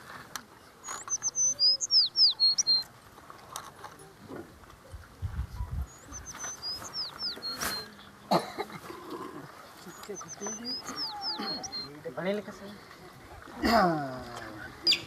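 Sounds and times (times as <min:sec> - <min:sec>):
songbird singing: 0:00.6 - 0:02.9, 0:04.7 - 0:13.2, 0:14.0 - 0:15.0.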